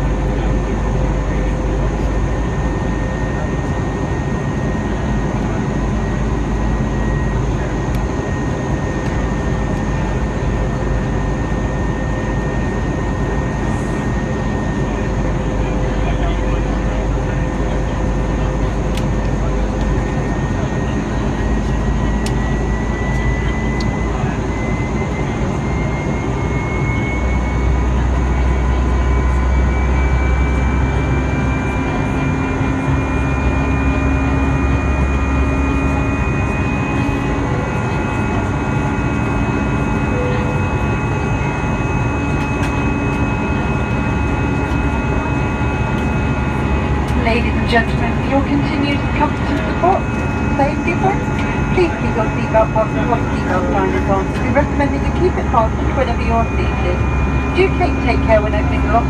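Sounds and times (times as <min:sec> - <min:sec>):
jet engine roar in cabin: 0:00.0 - 0:59.0
faint rising whine: 0:21.2 - 0:59.0.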